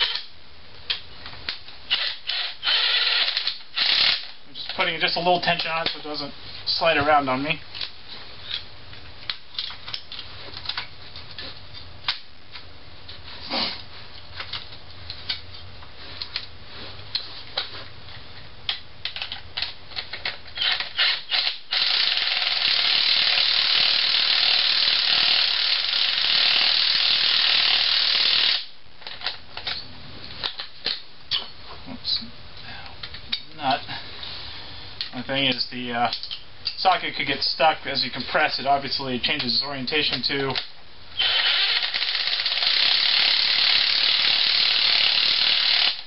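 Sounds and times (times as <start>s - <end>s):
cordless impact wrench running: 1.9s - 4.4s, 20.6s - 28.7s, 41.2s - 46.0s.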